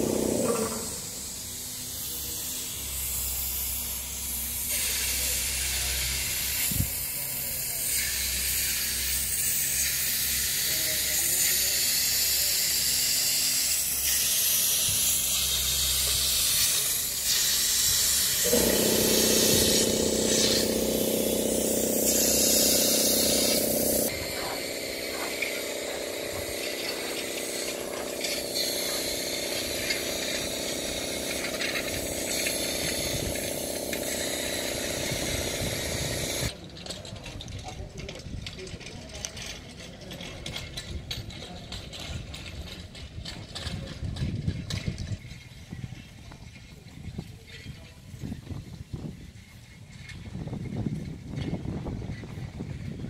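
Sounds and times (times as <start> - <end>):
loud steady hiss: 0.0 - 36.5
machine hum: 15.0 - 36.5.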